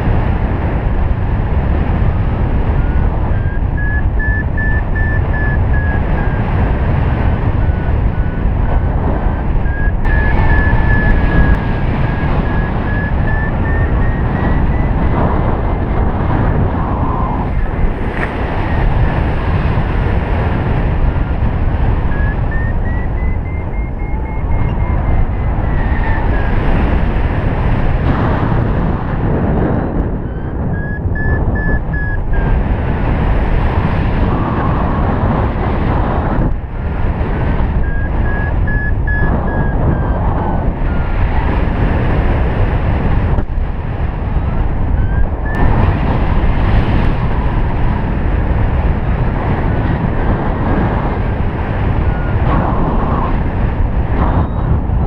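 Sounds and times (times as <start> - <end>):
wind rushing over microphone: 0.0 - 55.0
variometer beeps rising and falling: 2.9 - 6.4, 9.6 - 15.1, 22.1 - 26.5, 30.2 - 32.4, 37.8 - 40.2, 45.0 - 45.6.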